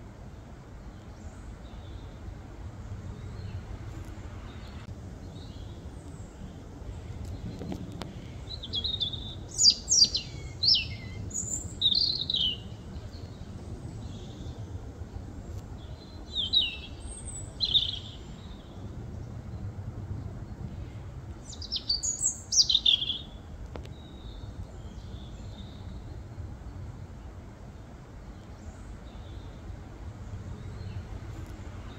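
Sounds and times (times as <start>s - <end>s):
low background rumble: 0.0s - 31.9s
robin singing: 8.1s - 14.7s, 15.8s - 18.8s, 21.4s - 26.3s.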